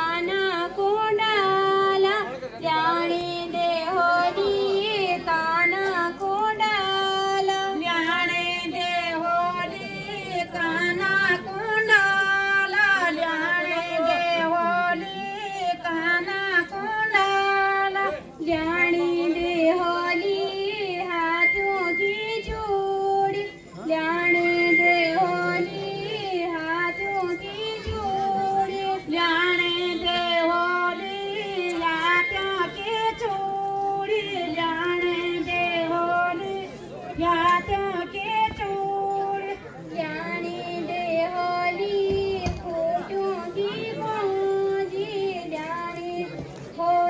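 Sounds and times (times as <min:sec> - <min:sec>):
women singing unaccompanied: 0:00.0 - 0:47.0.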